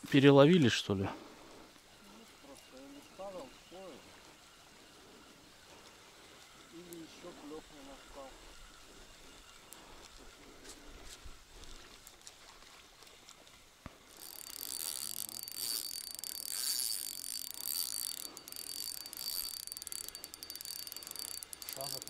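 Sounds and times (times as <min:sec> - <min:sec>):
fishing reel ratcheting whir: 0:14.1 - 0:22.0.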